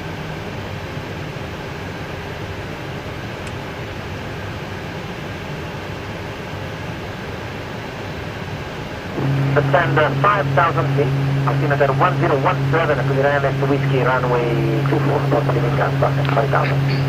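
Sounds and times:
faint steady hum: 0.5s - 17.0s
rush of air in cockpit: 9.0s - 17.0s.

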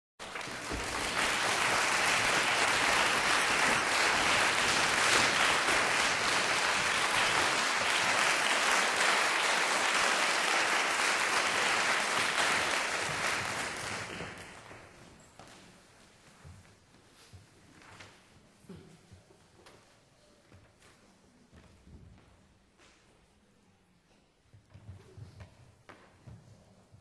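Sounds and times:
audience applauding: 0.2s - 14.7s.

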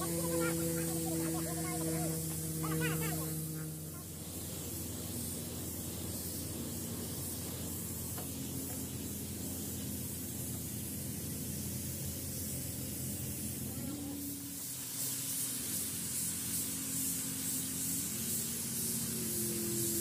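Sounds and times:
paint spray gun hissing: 0.0s - 20.0s.

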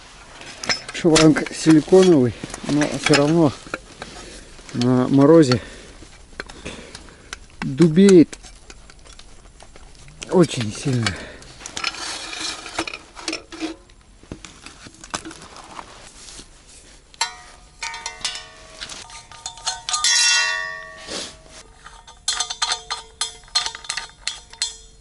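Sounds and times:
metal clanks and clicks: 0.4s - 5.7s, 6.4s - 14.0s, 17.2s - 25.0s
ringing metallic tone: 17.2s - 25.0s.

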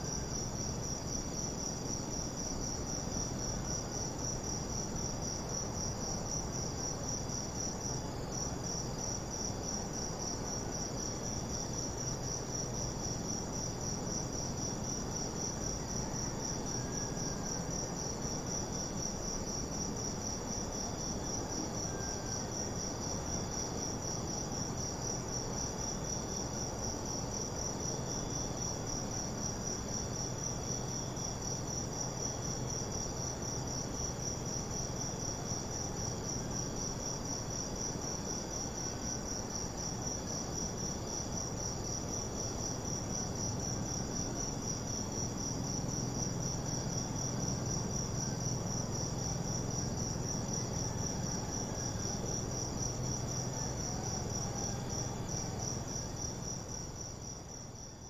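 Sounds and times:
crickets chirping: 0.0s - 58.0s.

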